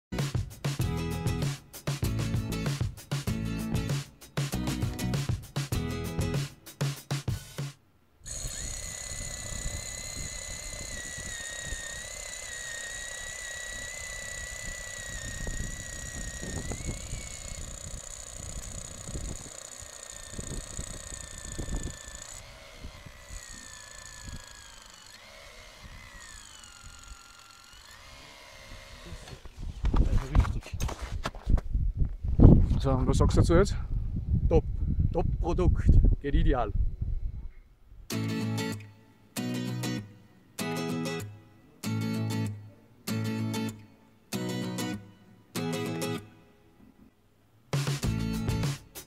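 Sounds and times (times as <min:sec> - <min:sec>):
cordless drill motor whining: 0:08.2 - 0:30.5
auger crunching through snow: 0:28.0 - 0:31.7.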